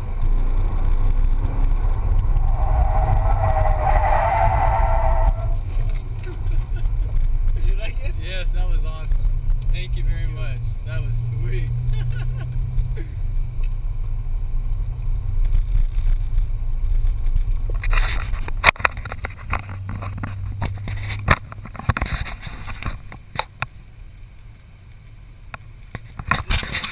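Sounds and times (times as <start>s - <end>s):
car engine droning in cabin: 0.0s - 17.7s.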